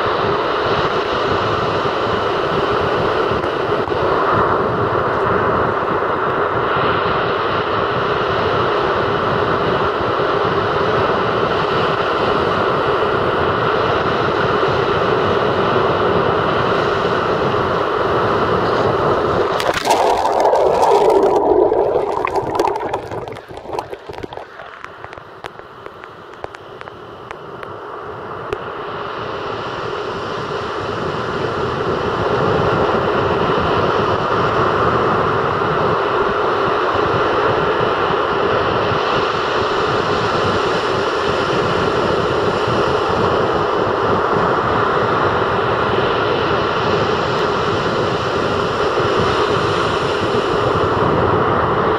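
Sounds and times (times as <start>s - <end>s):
surf washing up a beach: 0.0s - 37.6s
crackling on the microphone: 18.7s - 27.8s.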